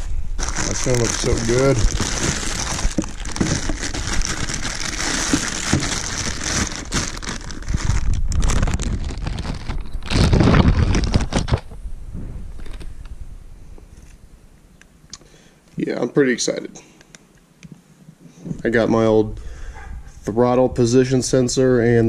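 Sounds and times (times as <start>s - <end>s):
plastic bag crinkling: 0.4s - 11.6s.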